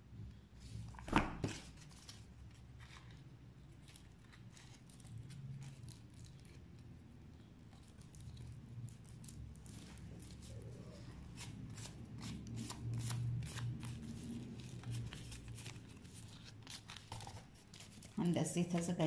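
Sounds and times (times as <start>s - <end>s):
paper rustling and crinkling: 0.8s - 6.9s, 7.7s - 19.0s.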